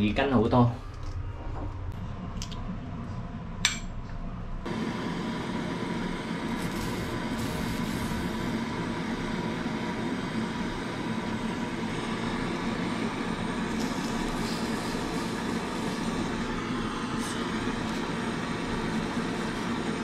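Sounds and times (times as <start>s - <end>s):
gas torch flame hissing: 4.6s - 20.0s.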